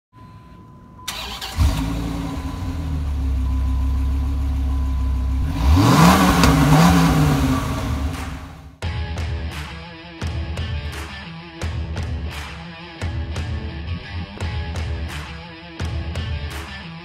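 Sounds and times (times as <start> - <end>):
car engine starting and idling: 1.0 - 8.8
engine revving: 1.1 - 8.8.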